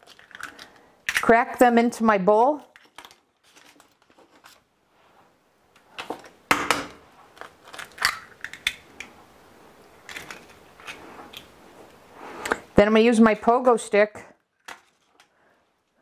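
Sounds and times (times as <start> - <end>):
eggshells cracking: 0.0 - 1.3, 7.3 - 9.1.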